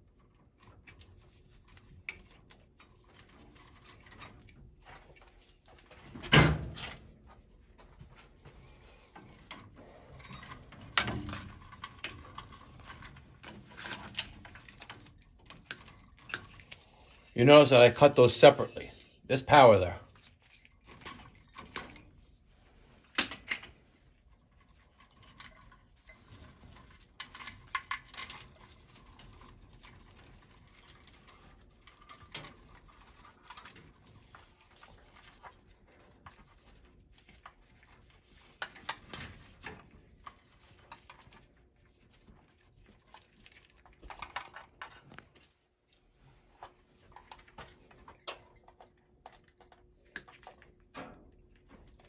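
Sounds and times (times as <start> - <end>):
wire clicking and rustling: 0.0 - 17.7, 19.5 - 52.0.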